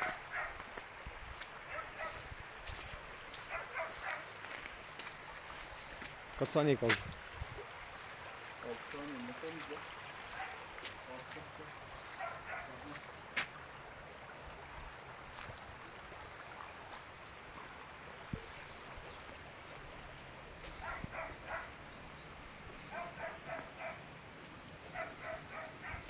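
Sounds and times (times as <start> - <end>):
faint dog barking: 0.0 - 0.7, 1.6 - 2.3, 3.4 - 4.4, 10.3 - 10.7, 12.1 - 13.0, 20.7 - 21.8, 22.9 - 24.1, 24.9 - 26.0
steady outdoor hiss: 0.0 - 26.0.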